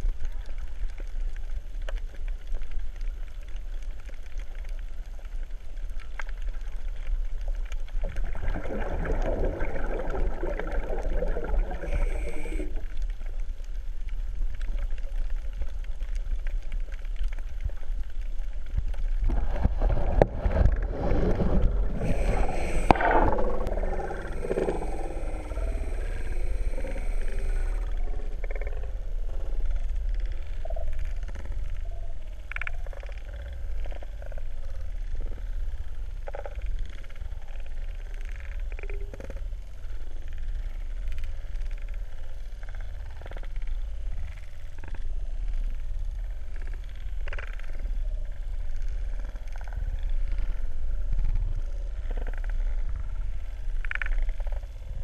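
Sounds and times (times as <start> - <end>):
underwater sloshing and gurgling: 0.0 - 55.0
steady low rumble: 7.6 - 32.5.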